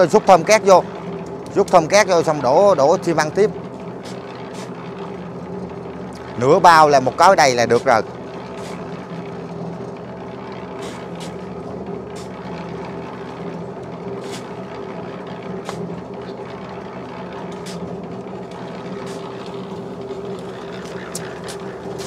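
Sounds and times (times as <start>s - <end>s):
concrete mixer humming: 0.0s - 22.0s
shovels scraping sand: 8.6s - 8.8s, 10.8s - 11.4s, 14.2s - 14.5s.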